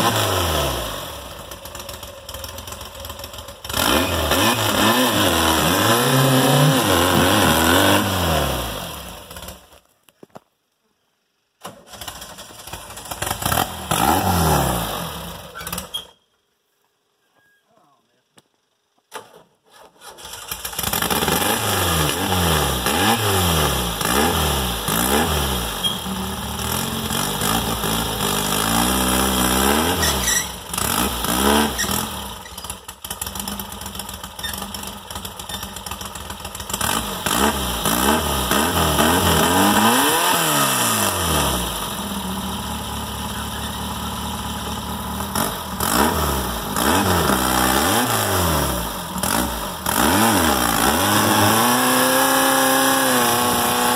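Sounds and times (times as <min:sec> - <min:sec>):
engine revving: 0:00.0 - 0:09.7, 0:11.9 - 0:15.9, 0:20.2 - 0:53.9.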